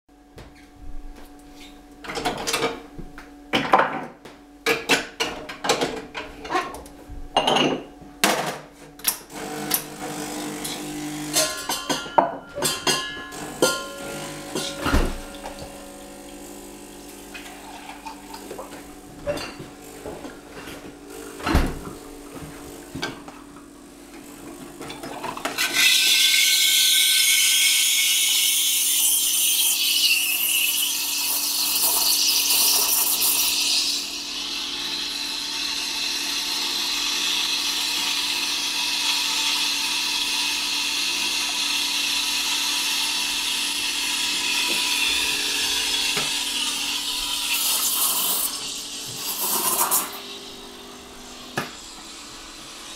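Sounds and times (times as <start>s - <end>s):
espresso machine humming: 9.3s - 23.3s, 24.0s - 52.9s
steam wand hissing frothing milk: 25.6s - 52.9s.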